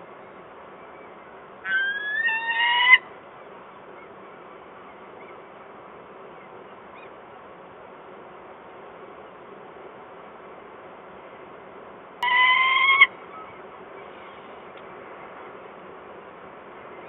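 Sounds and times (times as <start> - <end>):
falcon call: 1.6 - 3.1, 12.2 - 13.6.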